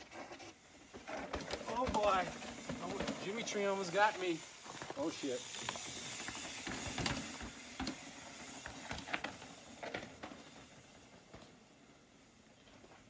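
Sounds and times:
bike tyres hissing over rock: 0:00.0 - 0:13.0
bike knocks and clicks: 0:01.0 - 0:03.9, 0:04.9 - 0:10.6.

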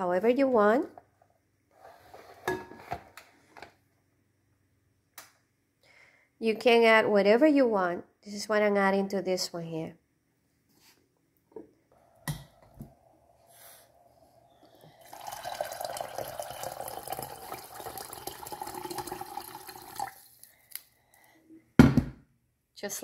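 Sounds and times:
water pouring into a metal pot: 0:14.7 - 0:20.5.

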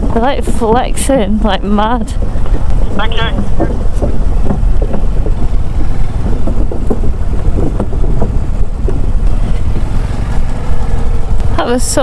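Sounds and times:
motorcycle engine rumble: 0:00.0 - 0:12.0
wind buffeting microphone: 0:00.0 - 0:12.0
wooden deck boards knocking: 0:02.6 - 0:10.0.

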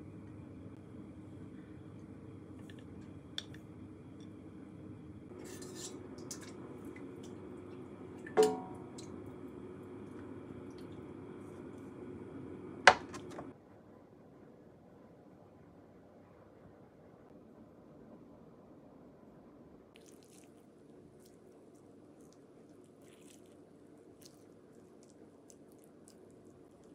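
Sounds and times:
steady hum: 0:00.0 - 0:19.9
dishes and utensils clicking: 0:08.2 - 0:09.1.

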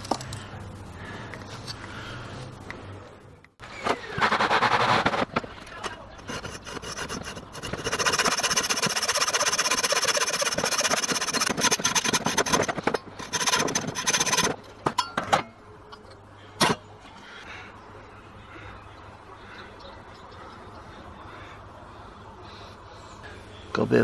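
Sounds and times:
hacksaw sawing metal: 0:06.2 - 0:14.6.

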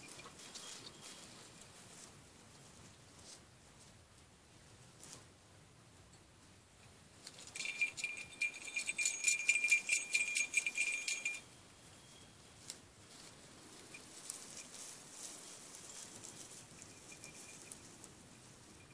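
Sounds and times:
faint metallic clinks: 0:00.0 - 0:01.8, 0:07.2 - 0:12.4, 0:13.7 - 0:18.9
small metal bell jangling: 0:07.3 - 0:11.5, 0:13.9 - 0:18.9.

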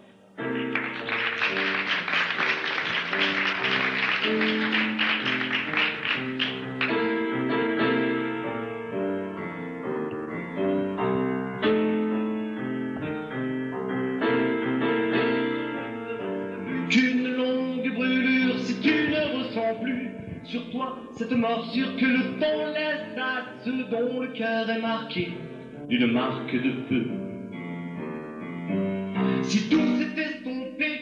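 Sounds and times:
live instrumental song intro: 0:00.0 - 0:21.2
keyboard chords: 0:00.0 - 0:30.7.

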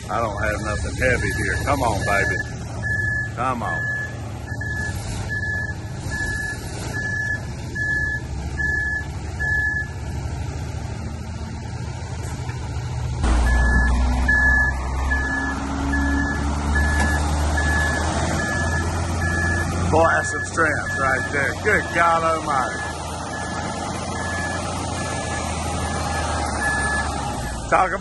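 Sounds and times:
diesel truck engine straining: 0:00.0 - 0:28.0
backup alarm beeping: 0:01.0 - 0:09.9, 0:13.2 - 0:22.0.

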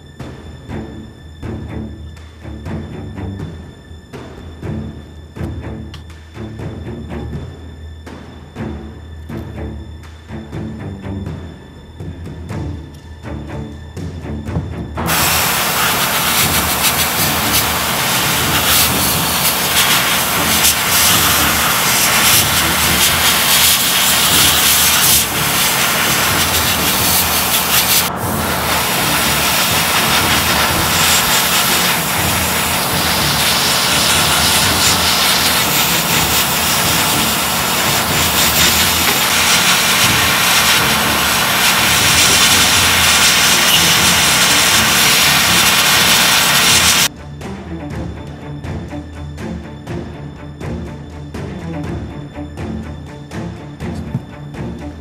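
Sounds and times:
airbrush air hiss: 0:15.1 - 0:47.1
extractor fan running: 0:15.1 - 0:47.1.

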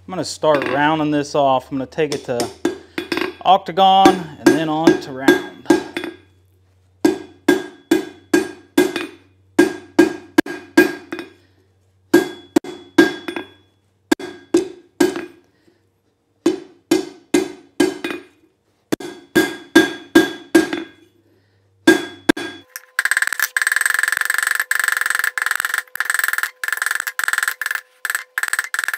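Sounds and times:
hammer striking steel on anvil: 0:02.1 - 0:06.2, 0:07.0 - 0:11.4, 0:12.1 - 0:15.5, 0:16.5 - 0:21.1, 0:21.8 - 0:22.9.

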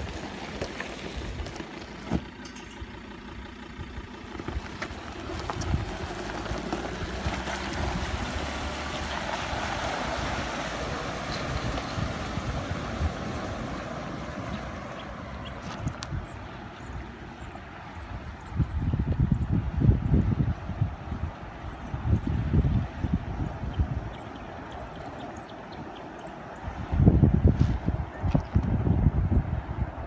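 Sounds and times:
rushing water wash: 0:00.0 - 0:02.2, 0:04.8 - 0:16.2
truck engine running: 0:00.0 - 0:26.0.

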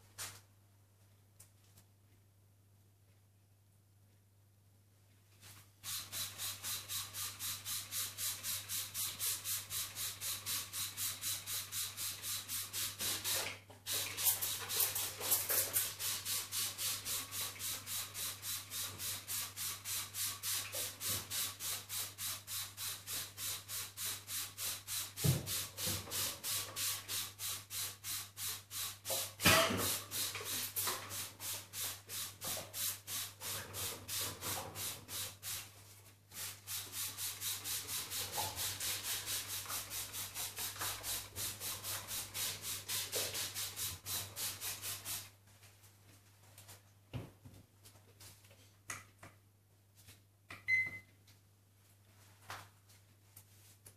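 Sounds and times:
spray bottle hissing: 0:05.8 - 0:35.7, 0:36.3 - 0:45.3.

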